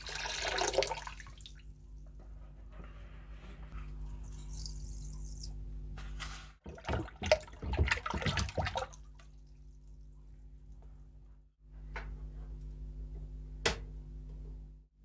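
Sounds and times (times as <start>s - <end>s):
water sloshing and splashing: 6.6s - 10.4s.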